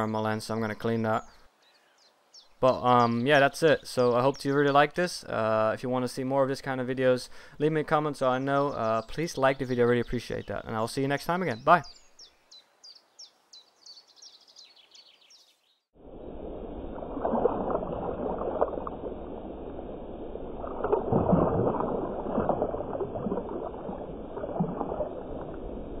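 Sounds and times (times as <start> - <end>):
faint bird chirping: 0.0 - 5.4, 8.1 - 15.9
water churning and splashing: 16.0 - 26.0.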